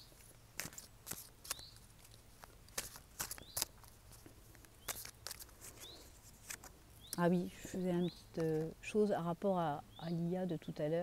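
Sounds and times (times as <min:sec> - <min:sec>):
cards being shuffled: 0:00.1 - 0:06.7.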